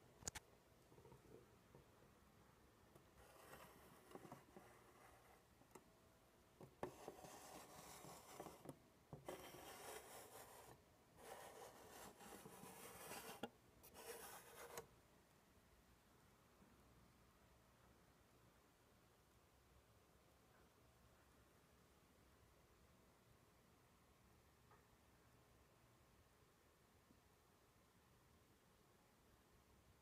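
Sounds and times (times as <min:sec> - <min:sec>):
handling rubbing and scraping: 0:06.7 - 0:14.8.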